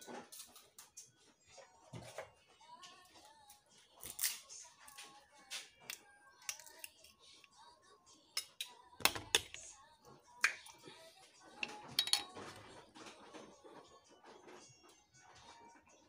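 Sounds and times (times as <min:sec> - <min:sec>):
faint background music: 0:00.0 - 0:16.0
kitchen items knocking and clicking: 0:08.4 - 0:10.7, 0:11.4 - 0:14.7.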